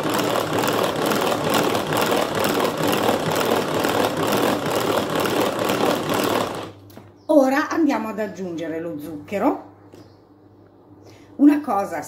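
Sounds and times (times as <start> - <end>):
hand-crank whisk whirring: 0.0 - 6.8.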